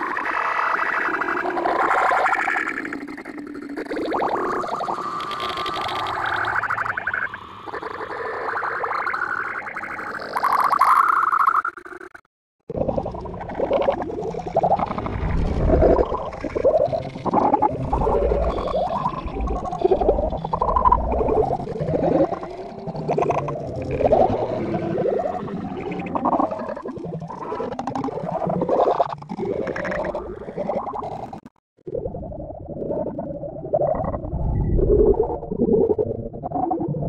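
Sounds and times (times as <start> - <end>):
warbling distorted cartoon audio: 0.0 - 37.0
low rumble: 14.7 - 16.9.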